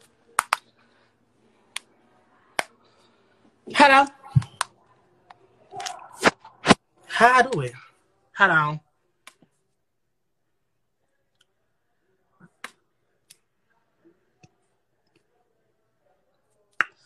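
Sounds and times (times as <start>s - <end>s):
fingers tapping touchscreen: 0.4s - 0.7s.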